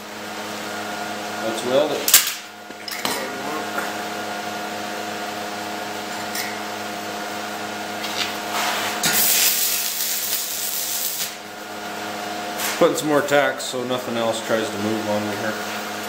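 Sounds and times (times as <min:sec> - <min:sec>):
welding arc crackling hiss: 0:08.0 - 0:11.5.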